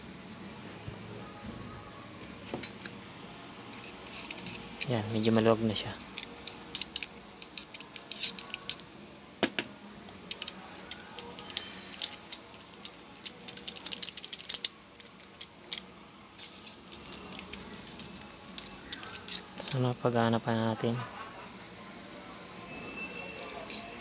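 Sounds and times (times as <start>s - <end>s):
screwdriver clicking on fan: 3.7s - 5.3s, 6.0s - 8.8s, 10.3s - 15.8s, 16.4s - 19.8s.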